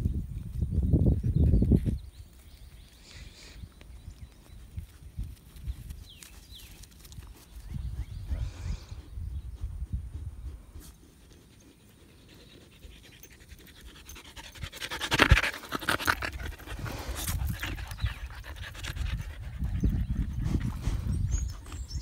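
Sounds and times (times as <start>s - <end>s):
dog panting rapidly: 10.1s - 21.7s.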